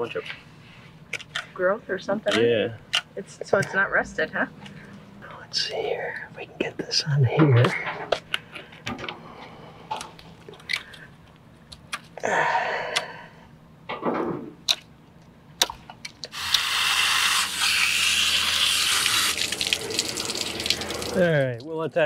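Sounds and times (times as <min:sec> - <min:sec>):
hose spraying water on metal: 0:16.3 - 0:21.3.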